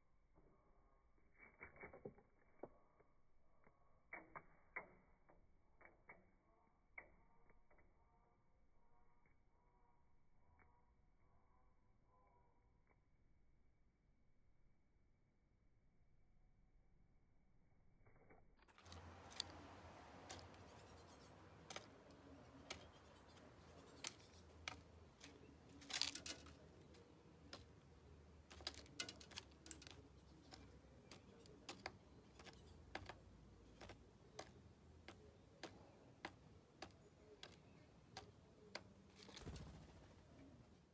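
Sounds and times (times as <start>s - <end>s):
bird beak tapping on wood: 18.8s - 39.7s.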